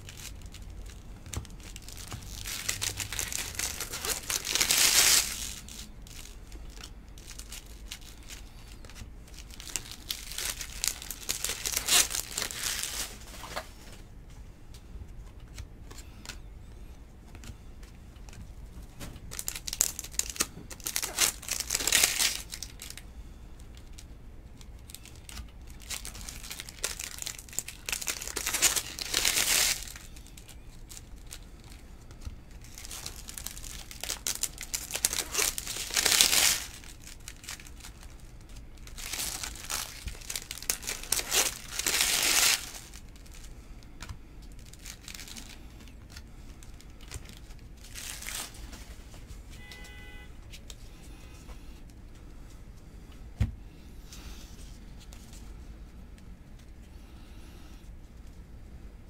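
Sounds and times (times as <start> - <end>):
foil wrappers crinkling and tearing: 0.0 - 13.8, 18.2 - 49.3.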